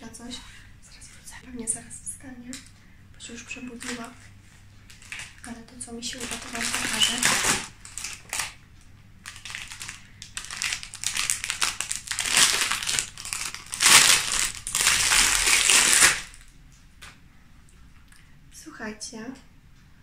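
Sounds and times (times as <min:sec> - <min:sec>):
plastic wrapping crinkling: 0:03.3 - 0:08.6, 0:09.2 - 0:16.5.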